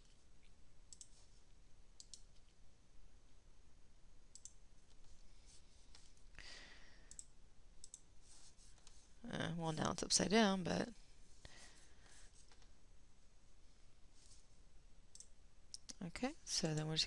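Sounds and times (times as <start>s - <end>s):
computer mouse clicks: 0.9s - 1.2s, 2.0s - 2.6s, 4.3s - 5.0s, 7.1s - 8.1s, 15.1s - 16.0s.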